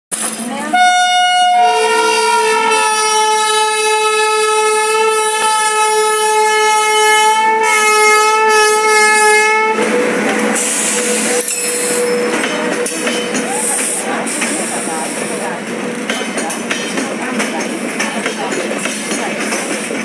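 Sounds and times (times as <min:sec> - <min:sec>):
train coaches rolling past: 0:00.1 - 0:20.0
locomotive horn blast: 0:00.7 - 0:16.7.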